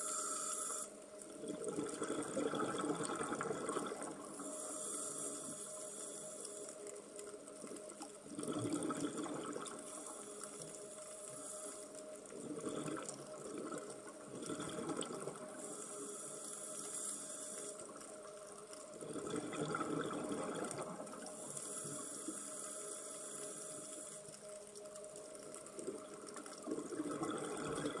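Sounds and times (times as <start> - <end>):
diver breathing through regulator: 0.0 - 0.9, 4.4 - 6.8, 9.9 - 12.0, 15.6 - 17.8, 21.3 - 24.3
high hiss: 0.0 - 1.0, 4.4 - 6.8
gurgling exhaled bubbles: 1.4 - 4.3, 8.3 - 9.9, 12.4 - 15.4, 19.0 - 21.5, 25.8 - 28.0.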